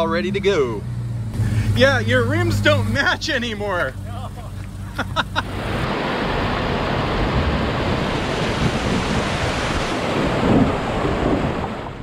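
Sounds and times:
low rumbles: 0.0s - 12.0s
wind buffeting microphone: 5.7s - 12.0s.

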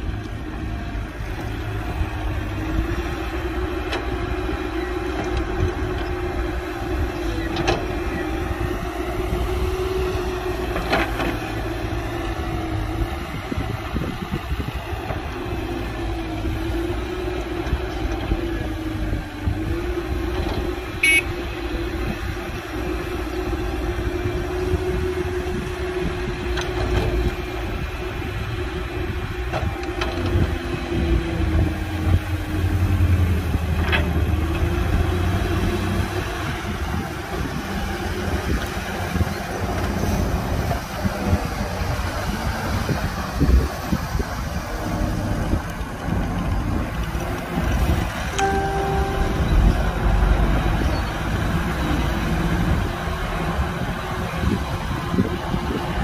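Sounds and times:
heavy diesel machinery rumbling: 0.0s - 56.0s
wavering whine: 48.3s - 50.6s.

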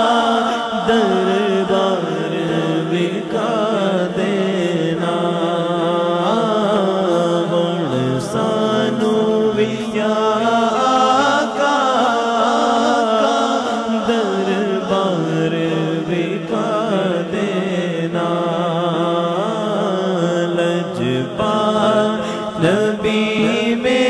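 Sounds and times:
man singing into a microphone: 0.0s - 24.0s.

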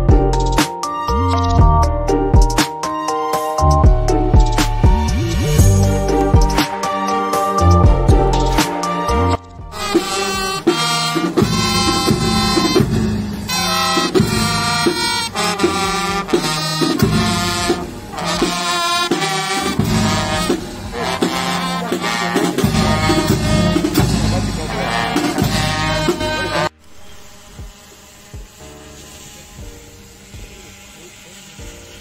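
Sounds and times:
bass drum beat: 0.0s - 0.6s, 1.5s - 2.6s, 3.6s - 6.8s, 7.6s - 10.2s, 11.4s - 13.3s, 14.1s - 17.8s, 22.6s - 26.7s, 27.6s - 27.8s
brass playing march tune: 5.6s - 31.8s.

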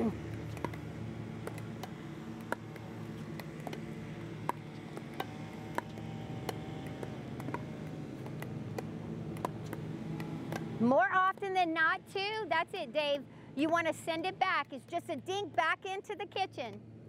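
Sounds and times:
pickleball paddle pocks and bounces: 0.0s - 11.6s
steady low hum: 0.0s - 17.0s.

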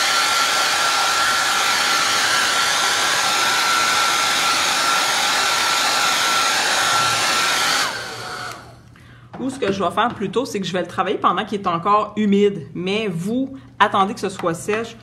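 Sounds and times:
hair dryer whine and rushing air: 0.0s - 8.8s.

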